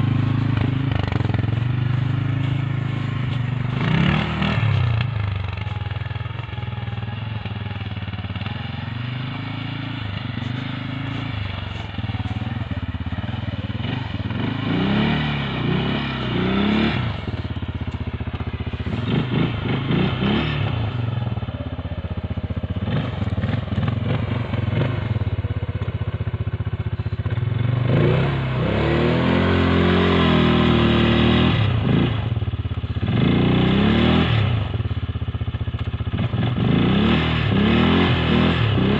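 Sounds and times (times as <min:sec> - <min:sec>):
atv engine revving: 0:00.0 - 0:38.9.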